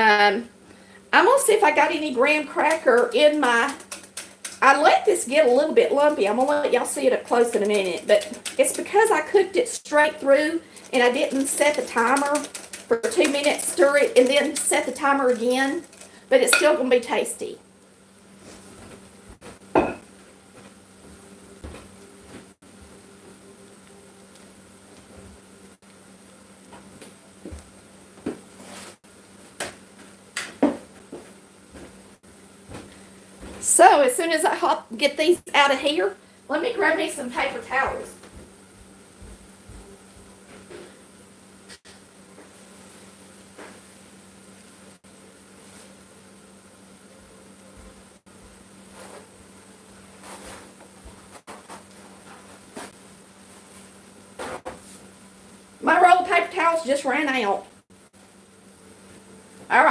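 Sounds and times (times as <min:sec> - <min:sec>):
food frying in oil: 0:00.0 - 0:59.9
paper towel rustling: 0:50.0 - 0:55.1.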